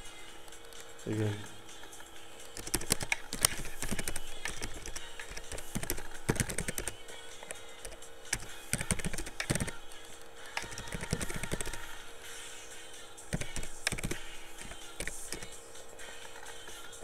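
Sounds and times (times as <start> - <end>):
keyboard typing: 1.8 - 12.0, 13.3 - 15.6.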